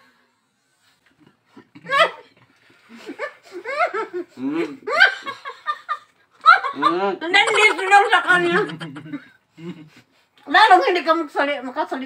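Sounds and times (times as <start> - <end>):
people laughing: 2.9 - 9.9.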